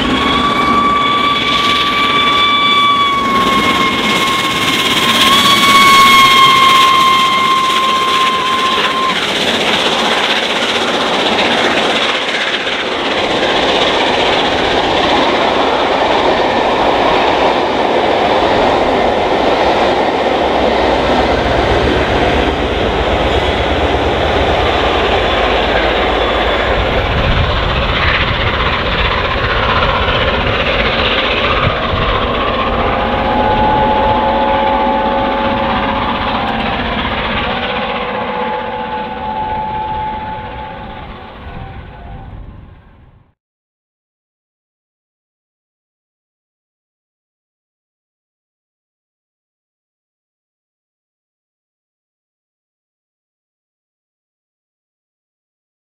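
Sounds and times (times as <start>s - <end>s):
steam locomotive whistle: 0.0s - 12.4s, 18.6s - 43.3s
train wheels rumbling and clattering: 0.0s - 43.3s.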